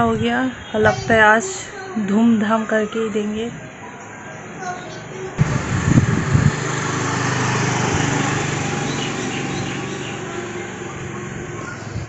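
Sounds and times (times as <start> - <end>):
wind buffeting microphone: 0.0 - 1.4, 5.4 - 12.0
wind rushing through trees: 0.0 - 1.6, 5.4 - 12.0.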